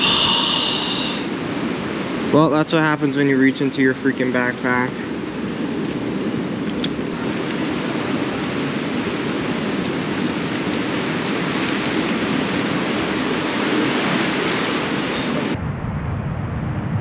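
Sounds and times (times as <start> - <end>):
dull low water rush: 0.0 - 15.9
water sloshing around pilings: 6.8 - 15.5.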